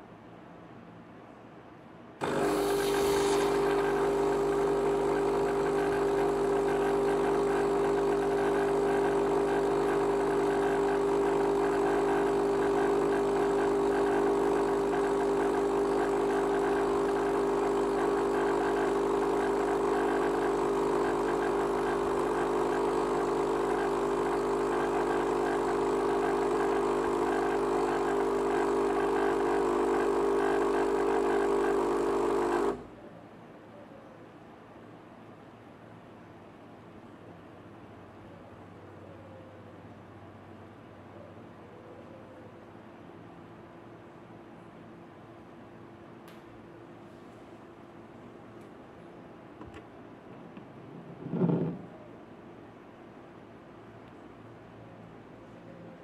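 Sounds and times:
coffee machine humming: 2.2 - 33.0, 49.6 - 52.1.

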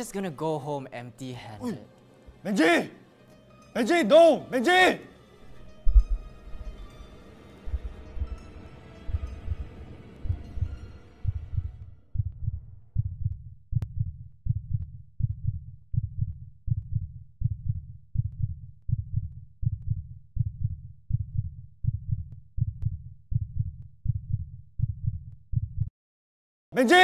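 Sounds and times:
heartbeat thumps: 5.8 - 6.4, 7.7 - 8.5, 9.1 - 25.9.

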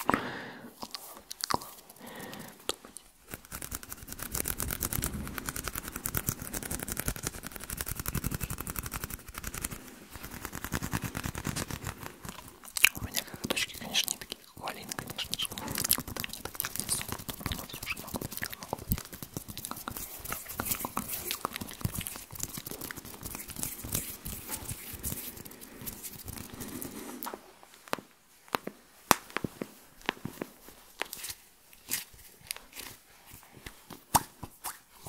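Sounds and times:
wet mouth clicks: 0.8 - 27.3
hand rustling: 2.4 - 33.0.

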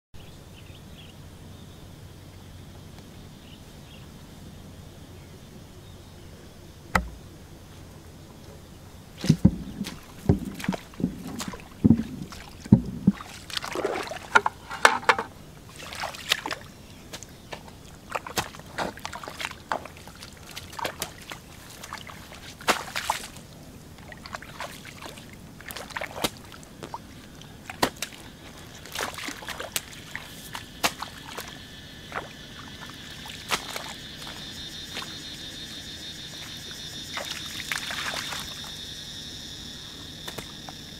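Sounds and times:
dull thumps: 6.9 - 7.3, 9.2 - 15.3
muddy water splashing: 6.9 - 40.9
hoe digging into mud: 9.2 - 16.4, 27.7 - 32.3.

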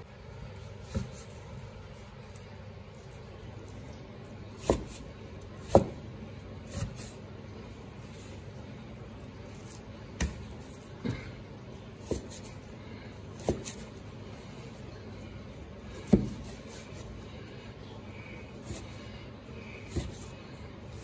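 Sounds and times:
cleaver chopping meat on board: 4.6 - 5.0, 5.6 - 6.0, 13.4 - 13.9, 16.1 - 16.5, 19.9 - 20.2.

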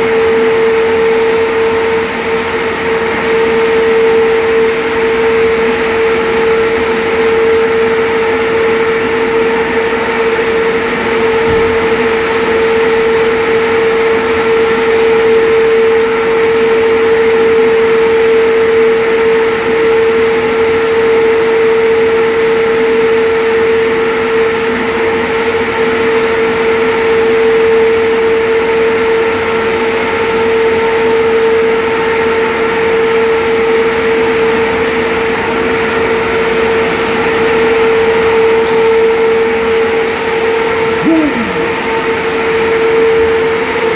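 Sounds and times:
machinery hum: 39.0 - 43.3.

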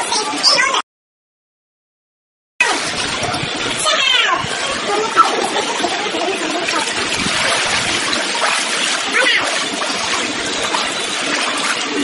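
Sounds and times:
children's voices: 0.0 - 0.8, 2.6 - 7.3, 9.0 - 9.6
pool water splashing: 2.6 - 12.0.

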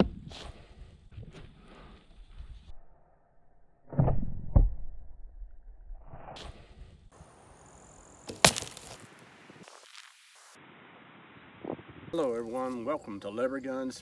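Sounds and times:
arrow striking target crack: 8.3 - 9.1.

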